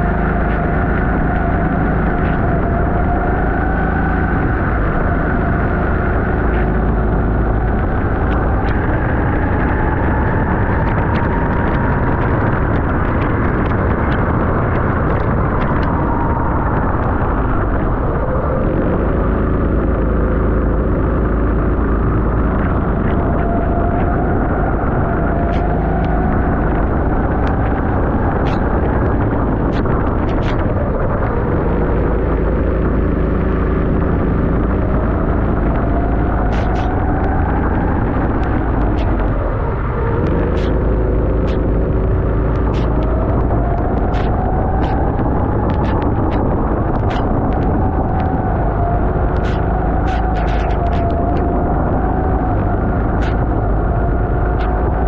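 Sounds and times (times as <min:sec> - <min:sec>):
go-kart engine running hard: 0:00.0 - 0:55.0
wind and water spray: 0:24.3 - 0:55.0.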